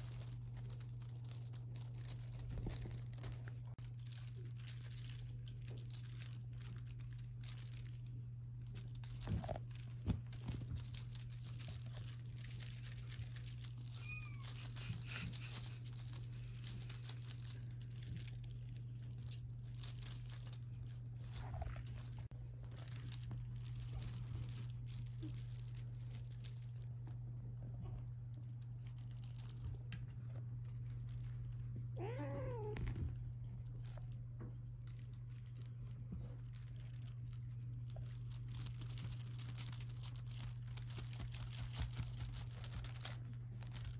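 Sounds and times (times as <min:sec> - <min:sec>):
rustling and scratching: 0:00.0 - 0:43.9
kitten meowing: 0:14.0 - 0:14.6.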